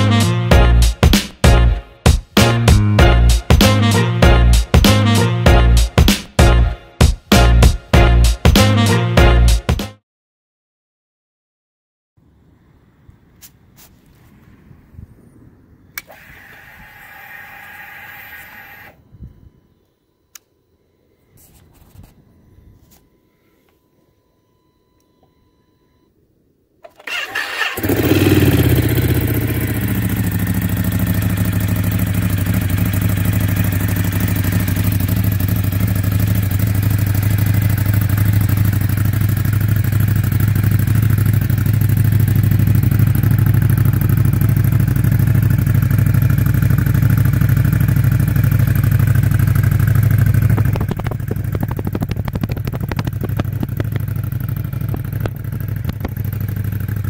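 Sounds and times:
motorcycle engine cranking: 0:26.8 - 0:57.0
motorcycle engine idling: 0:27.0 - 0:57.0.

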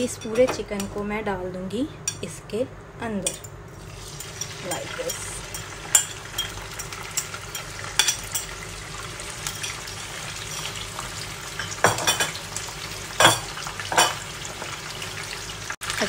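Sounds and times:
chicken sizzling in oil: 0:03.7 - 0:16.0.

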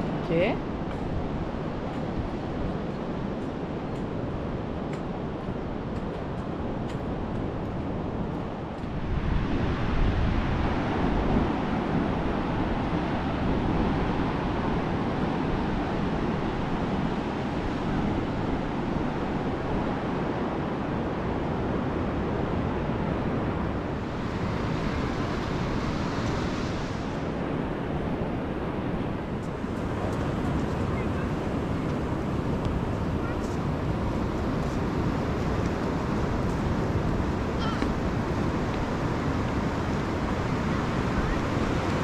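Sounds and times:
ocean surf washing on beach: 0:00.0 - 0:42.0
wind buffeting microphone: 0:00.0 - 0:42.0.

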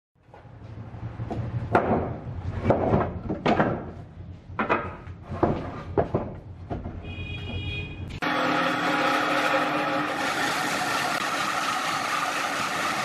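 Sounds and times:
wooden boards knocking: 0:01.3 - 0:04.0, 0:04.6 - 0:07.7.

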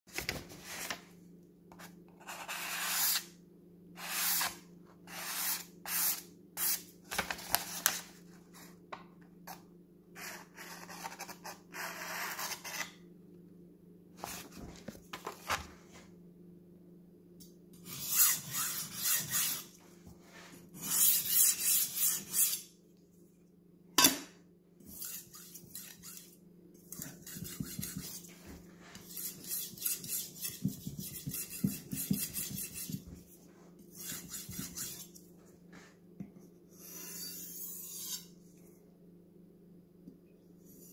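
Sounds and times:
faint steady hum: 0:00.1 - 0:40.9
knife scraping on sharpening stone: 0:20.8 - 0:22.7, 0:24.9 - 0:26.3, 0:29.1 - 0:33.0, 0:36.8 - 0:38.3.

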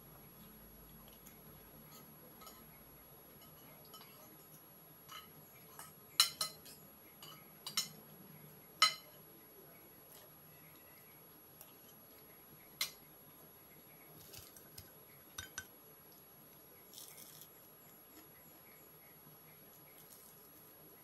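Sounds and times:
spoon clinking on ceramic plate: 0:01.9 - 0:02.7, 0:05.1 - 0:08.0, 0:08.8 - 0:09.1, 0:15.4 - 0:15.7
dry crackle of fried fish: 0:14.1 - 0:15.0, 0:16.1 - 0:18.3, 0:19.7 - 0:21.0.

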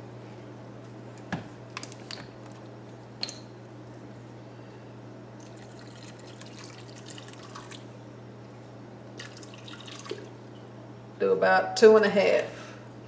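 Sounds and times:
water pouring and splashing: 0:09.2 - 0:10.3.

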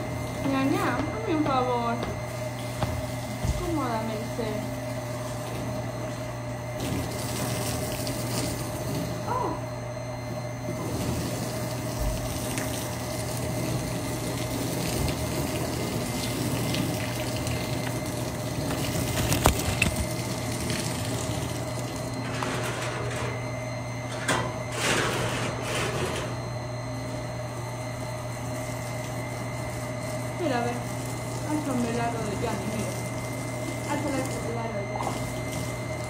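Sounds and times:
hose water splashing on concrete: 0:06.8 - 0:09.0, 0:10.9 - 0:22.1, 0:30.4 - 0:36.0.

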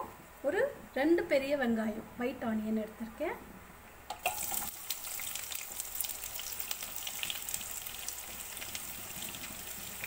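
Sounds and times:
onions sizzling in hot oil: 0:04.1 - 0:10.0.

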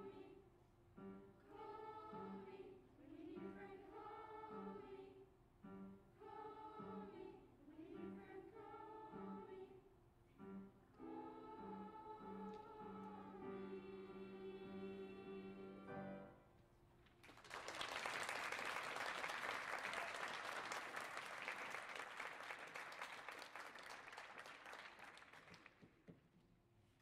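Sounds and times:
choir singing with piano: 0:00.0 - 0:00.4, 0:01.0 - 0:16.4
audience applauding: 0:17.2 - 0:25.9.

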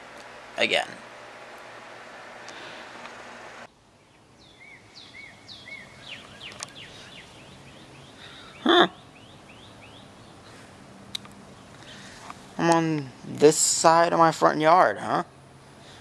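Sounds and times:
room hiss: 0:00.0 - 0:08.4
birds chirping: 0:03.9 - 0:12.4.

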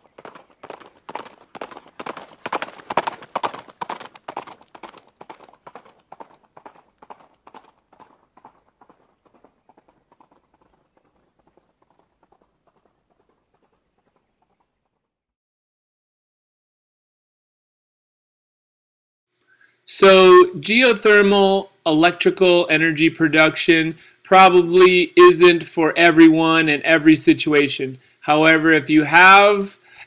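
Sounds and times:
rhythmic hard clopping: 0:00.0 - 0:14.6.

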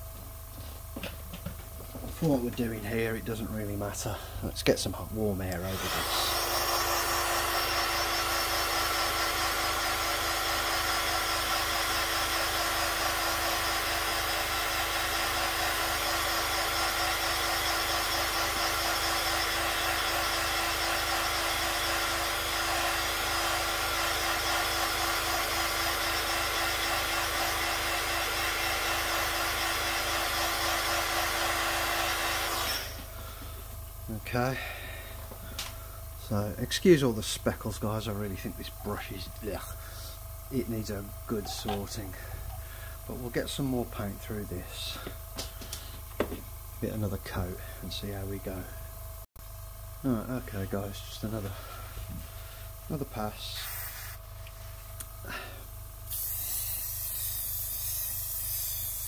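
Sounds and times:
hair dryer running: 0:05.5 - 0:33.8.

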